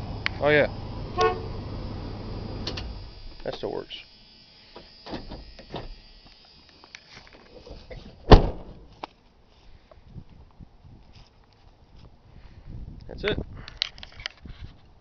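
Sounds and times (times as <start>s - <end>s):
truck door slamming: 8.2s - 8.9s.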